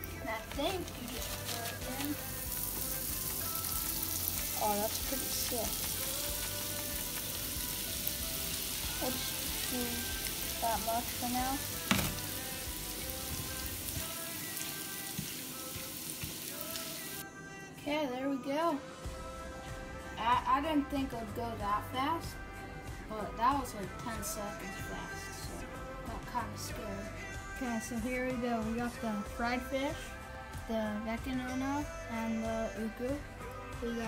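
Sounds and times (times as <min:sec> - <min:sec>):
breadcrumbs sizzling in oil: 0:00.0 - 0:17.2.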